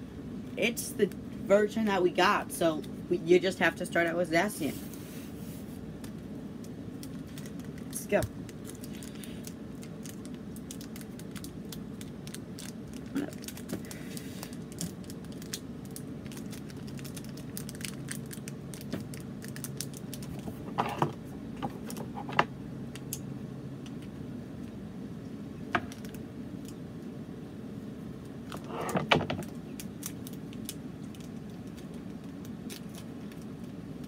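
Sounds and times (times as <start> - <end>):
foil pack crinkling: 6.0 - 20.8, 29.3 - 34.0.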